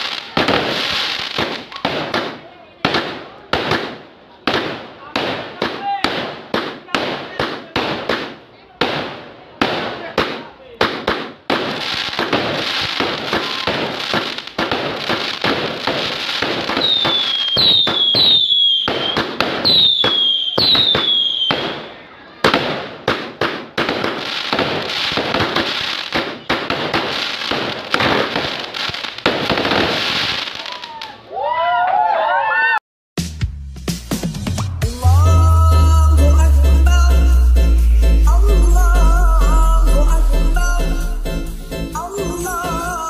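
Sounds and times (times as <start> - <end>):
fireworks crackling and popping: 0.0 - 31.3
fireworks falling whistles: 11.7 - 22.0, 24.0 - 31.2.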